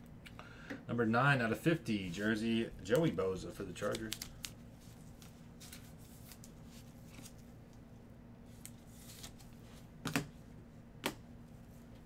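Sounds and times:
cards sliding and rubbing: 0:08.5 - 0:09.9.

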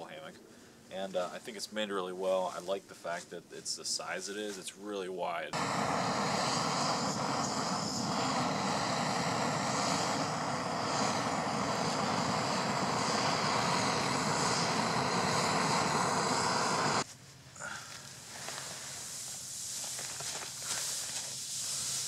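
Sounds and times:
gas stove burning: 0:05.6 - 0:22.0.

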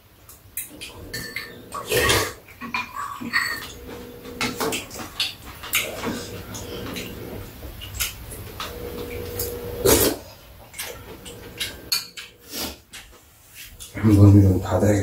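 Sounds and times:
chewing: 0:00.3 - 0:13.1
slurping: 0:00.7 - 0:02.5, 0:05.6 - 0:12.8
spoons clicking against bowls: 0:10.7 - 0:12.4.

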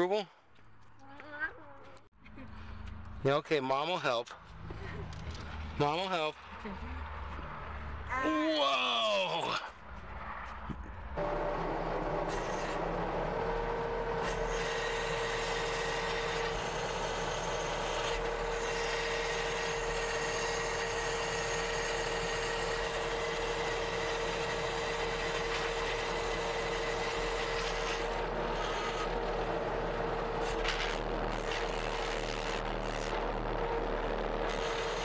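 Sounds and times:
loader engine running: 0:09.9 - 0:35.0
steady whine: 0:10.0 - 0:35.0.

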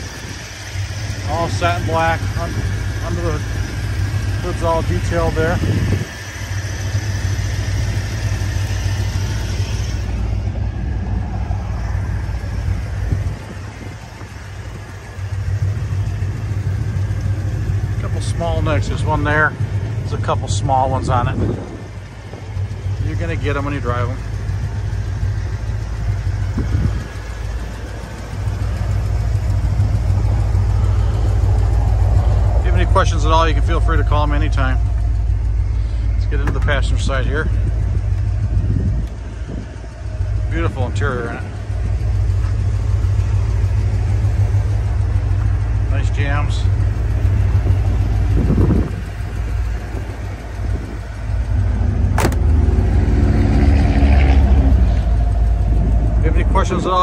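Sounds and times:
car engine idling: 0:00.0 - 0:57.0
car door shutting: 0:36.4 - 0:36.8, 0:52.0 - 0:52.6.

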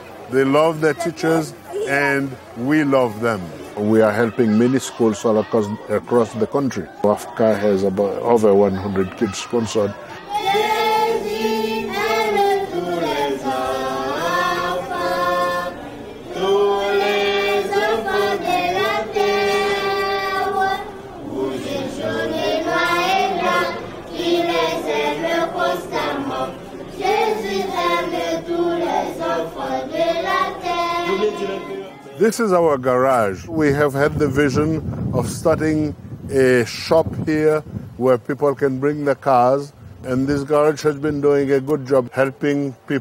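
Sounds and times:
choir of high voices singing: 0:09.8 - 0:32.0.

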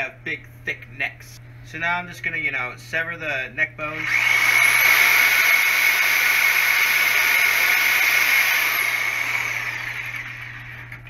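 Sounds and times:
power saw cutting bone: 0:04.0 - 0:11.0.

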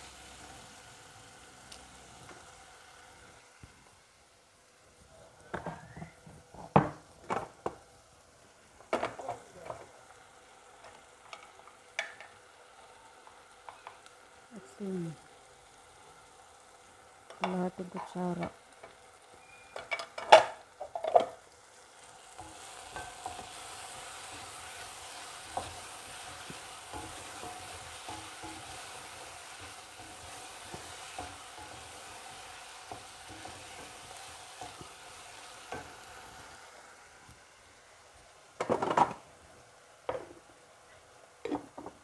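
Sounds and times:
chicken sizzling in a pan: 0:00.0 - 0:42.0
metal cookware clanking: 0:19.7 - 0:21.4.

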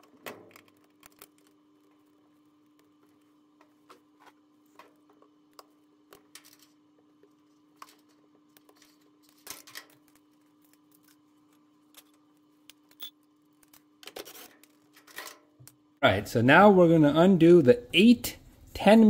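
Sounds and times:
faint steady hum: 0:00.0 - 0:19.0
clicks and rustles of plastic clips: 0:07.8 - 0:12.9.

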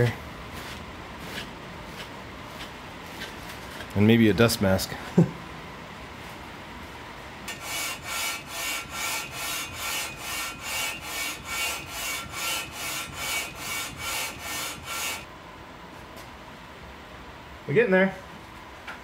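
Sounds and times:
metal rasping on sandpaper: 0:07.5 - 0:15.2.

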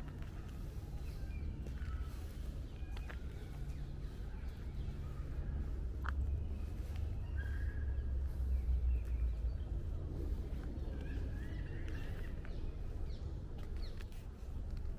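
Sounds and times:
small birds chirping: 0:00.0 - 0:14.9
steady low rumble: 0:00.0 - 0:14.9.

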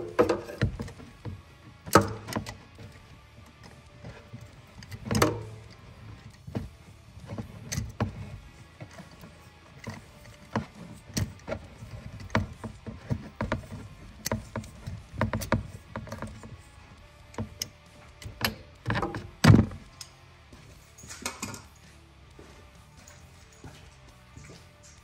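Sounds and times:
ratchet clicking and knocking: 0:00.0 - 0:20.2.

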